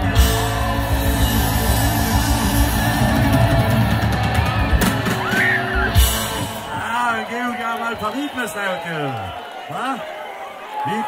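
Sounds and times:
live rock band playing: 0.0 - 8.1
crowd yelling and whooping: 0.0 - 11.0.

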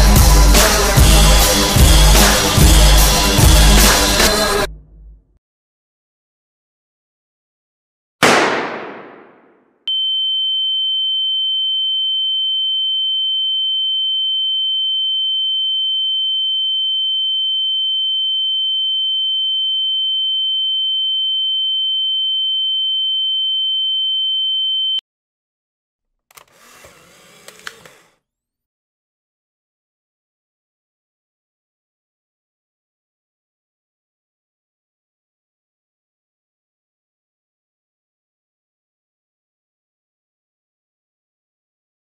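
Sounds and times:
loud gunshot with echo: 8.2 - 9.7.

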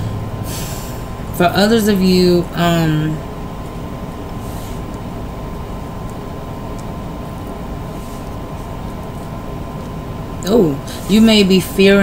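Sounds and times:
room noise hum and hiss: 0.0 - 12.0
thin constant tone: 0.0 - 12.0.

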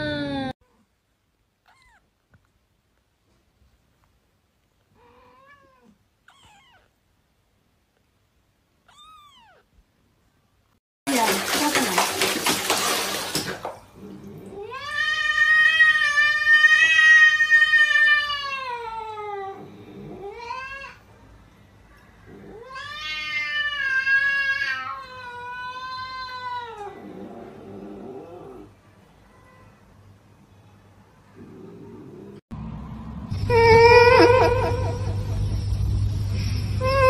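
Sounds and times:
cat meowing: 1.6 - 2.0, 5.0 - 6.9, 8.8 - 9.7
cat yowling: 5.0 - 6.9, 8.9 - 9.7.

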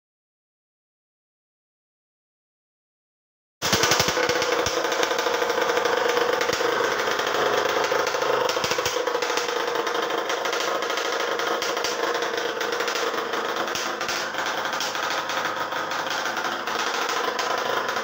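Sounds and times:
two-stroke engine running: 3.6 - 18.0.

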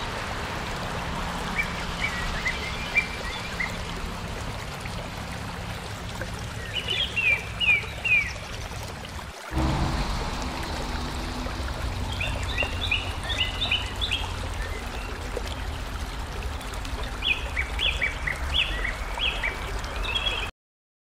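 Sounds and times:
steady low rumble: 9.5 - 17.1
bird chirping: 9.6 - 15.2.

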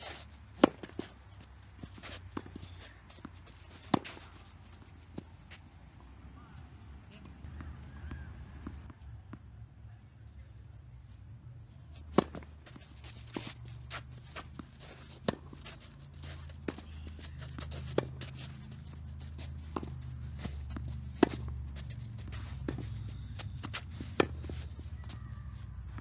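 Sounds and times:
racket hitting tennis ball: 0.0 - 1.2, 1.8 - 4.5, 12.0 - 24.8
footsteps on clay: 0.0 - 5.7, 11.9 - 26.0.

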